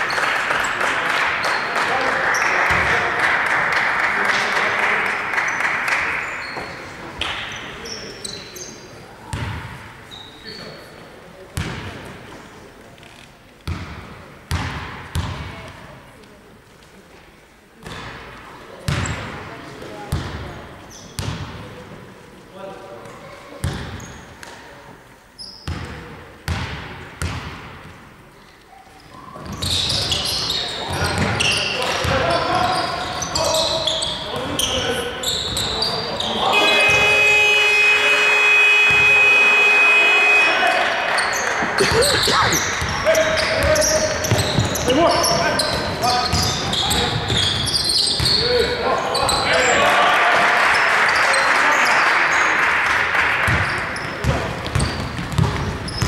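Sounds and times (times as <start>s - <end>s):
spectators applauding and cheering: 0.0s - 6.4s, 40.2s - 43.6s, 49.7s - 54.0s
basketball shoes squeaking: 6.2s - 10.8s, 18.9s - 19.4s, 20.1s - 21.6s, 25.4s - 28.0s, 28.7s - 37.9s, 41.1s - 49.5s, 53.5s - 56.0s
basketball bouncing on hardwood floor: 43.6s - 44.8s, 54.2s - 56.0s.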